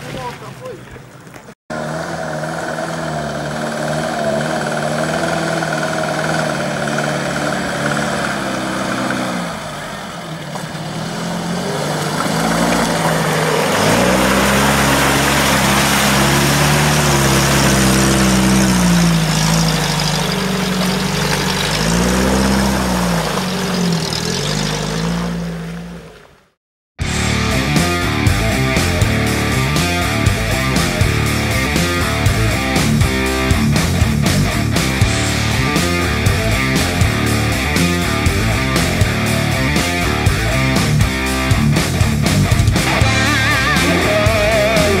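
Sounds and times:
engine working hard in mud: 0:01.7 - 0:45.0
rushing noise: 0:11.0 - 0:25.0.

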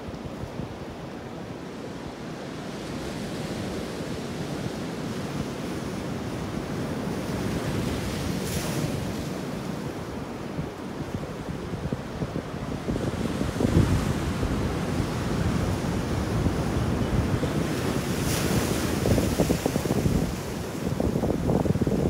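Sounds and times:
wind buffeting microphone: 0:10.5 - 0:22.0
sea waves on rocky shore: 0:11.1 - 0:22.0.

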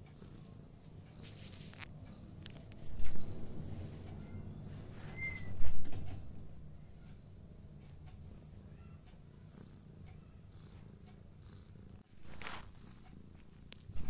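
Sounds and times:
cat purring: 0:00.0 - 0:14.0
paws rustling in fabric: 0:12.1 - 0:12.8.

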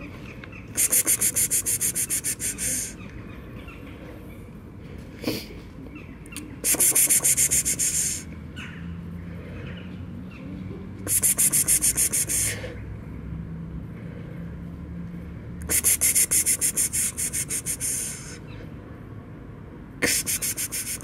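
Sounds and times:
person calling a cat: 0:00.8 - 0:03.0, 0:06.6 - 0:08.3, 0:11.0 - 0:12.7, 0:15.6 - 0:18.4, 0:20.0 - 0:21.0.

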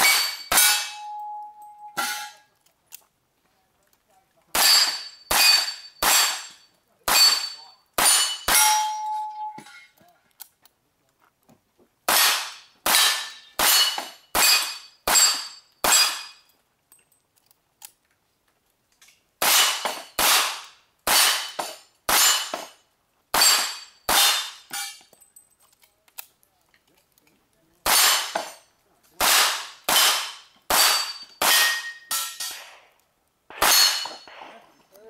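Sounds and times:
steel target plate ringing: 0:00.0 - 0:02.5, 0:04.6 - 0:10.0, 0:12.2 - 0:16.5, 0:23.4 - 0:25.1, 0:29.6 - 0:32.8, 0:33.5 - 0:34.4.

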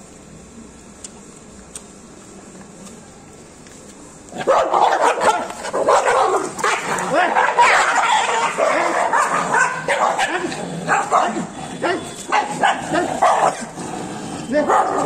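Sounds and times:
dogs barking and yelping: 0:04.4 - 0:15.0.

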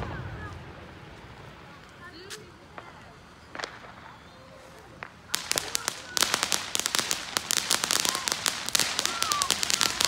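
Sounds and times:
firework fountain crackling: 0:00.0 - 0:10.0.

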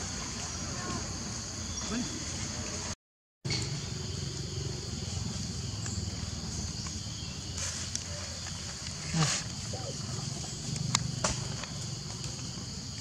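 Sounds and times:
high insect drone: 0:03.5 - 0:13.0.

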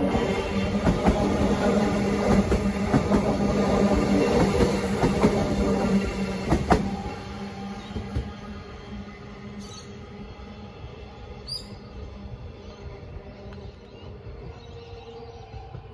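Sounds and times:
train wheels clicking on track: 0:00.0 - 0:08.5
electric train humming: 0:00.0 - 0:15.9.

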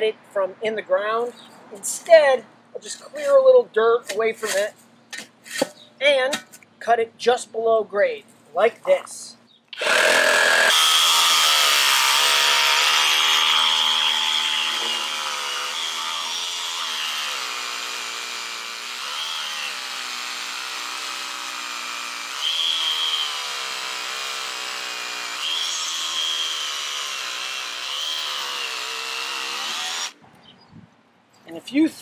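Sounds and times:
reciprocating saw cutting wood: 0:09.8 - 0:30.2.

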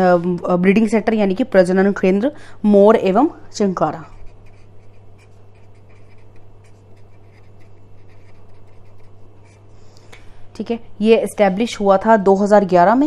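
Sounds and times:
marker pen scratching on paper: 0:04.0 - 0:09.7.

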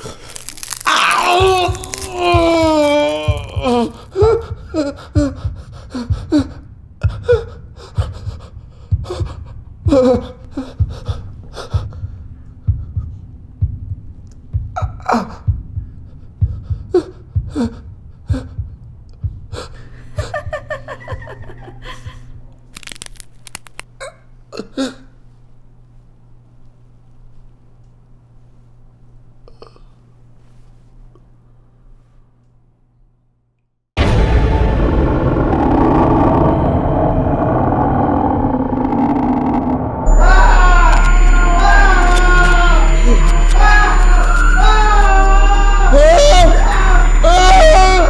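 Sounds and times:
steady low hum: 0:00.0 - 0:30.4, 0:34.0 - 0:48.0
man sobbing in pain: 0:01.0 - 0:08.2, 0:09.9 - 0:11.2
low pulsing beat: 0:01.0 - 0:22.2, 0:34.0 - 0:48.0.

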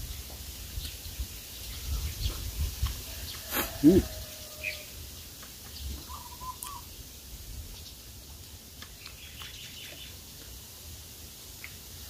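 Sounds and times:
faint bird chirps: 0:05.8 - 0:06.9.

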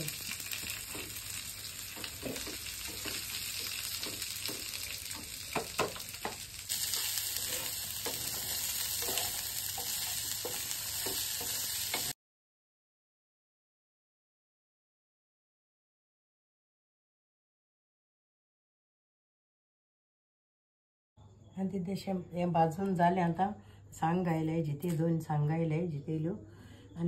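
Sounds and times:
spices sizzling in oil: 0:00.0 - 0:12.2
wooden spatula scraping pan: 0:00.7 - 0:12.1.

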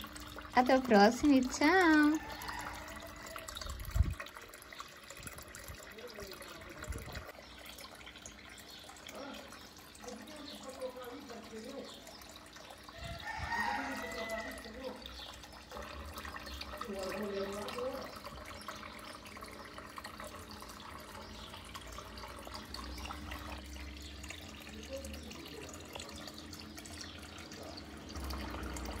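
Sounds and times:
fountain water trickling and splashing: 0:00.0 - 0:29.0.

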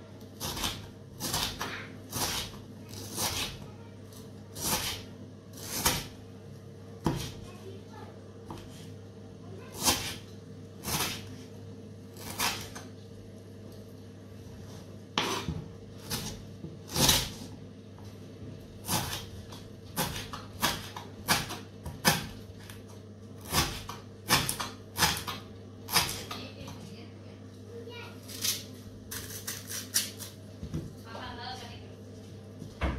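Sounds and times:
steady low hum: 0:00.0 - 0:32.9
knife chopping on wooden board: 0:07.0 - 0:07.4, 0:15.2 - 0:17.4, 0:18.8 - 0:22.8, 0:23.4 - 0:26.4.

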